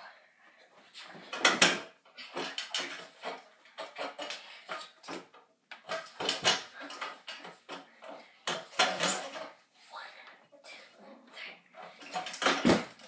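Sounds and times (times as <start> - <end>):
metal bar clanking and rattling: 1.3 - 9.6, 11.9 - 13.0.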